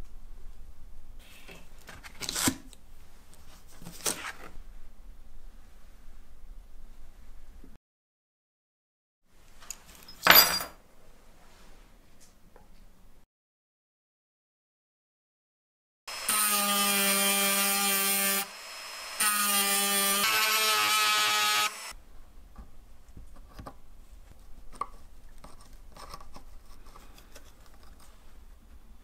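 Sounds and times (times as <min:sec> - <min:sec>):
small power tool whining: 0:16.1 - 0:22.0.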